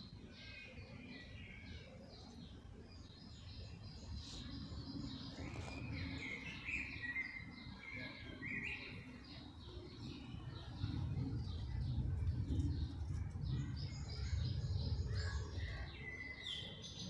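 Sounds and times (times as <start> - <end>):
songbirds chirping and singing: 0.0 - 17.0
low continuous rumble: 2.3 - 17.0.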